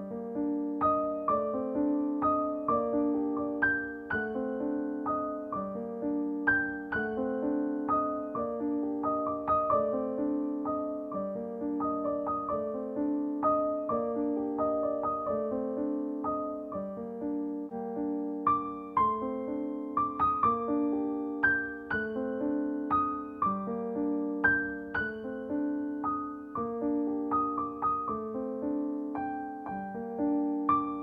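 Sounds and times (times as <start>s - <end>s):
gentle piano melody: 0.0s - 31.0s.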